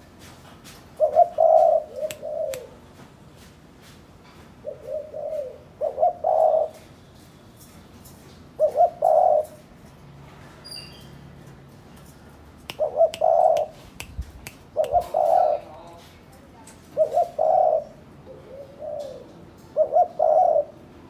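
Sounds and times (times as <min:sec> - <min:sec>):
dove cooing: 0:00.9 - 0:02.8, 0:04.6 - 0:06.9, 0:08.6 - 0:09.7, 0:12.8 - 0:13.8, 0:14.7 - 0:15.9, 0:16.8 - 0:21.0.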